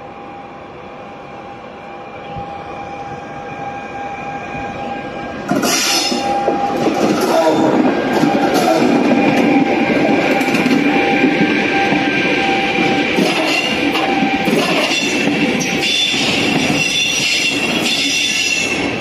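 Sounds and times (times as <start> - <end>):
train passing: 0.0 - 19.0
coaches clattering over rails: 5.5 - 19.0.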